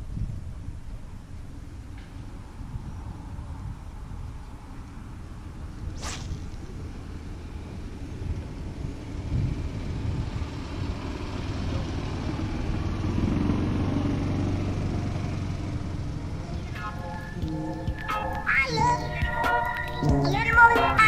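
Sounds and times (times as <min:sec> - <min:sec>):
brief swish: 0:05.9 - 0:06.8
golf cart rumbling: 0:06.5 - 0:18.1
steady hum: 0:16.0 - 0:21.0.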